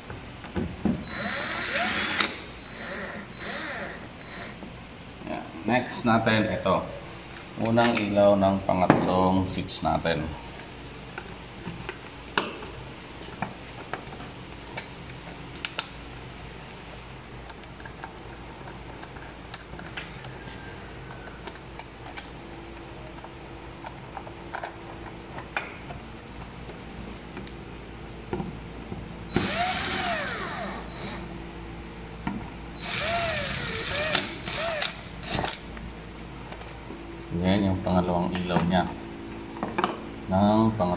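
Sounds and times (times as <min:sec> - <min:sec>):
cordless drill motor whining: 0:01.0 - 0:04.6, 0:29.3 - 0:31.2, 0:32.8 - 0:35.6.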